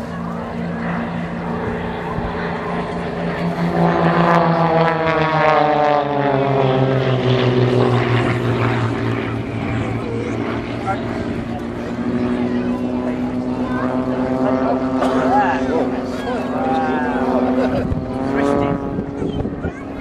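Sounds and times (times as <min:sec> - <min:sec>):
propeller aircraft flying overhead: 0:00.0 - 0:20.0.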